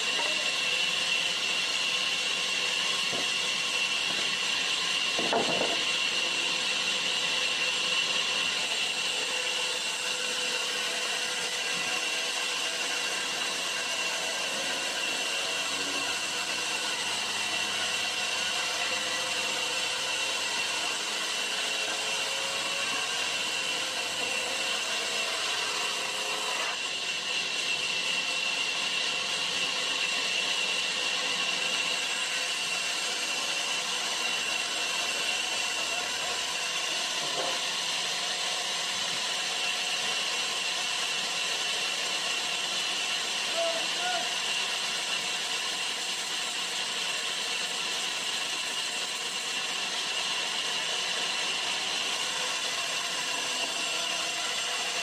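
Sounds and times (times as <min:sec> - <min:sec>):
band saw cutting timber: 0:00.0 - 0:55.0.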